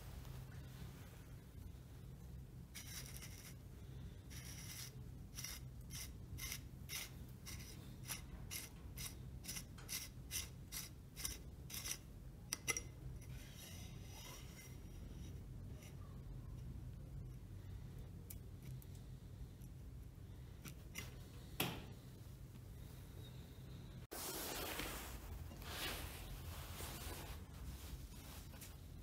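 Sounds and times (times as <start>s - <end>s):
metal threads scraping: 2.7s - 16.4s.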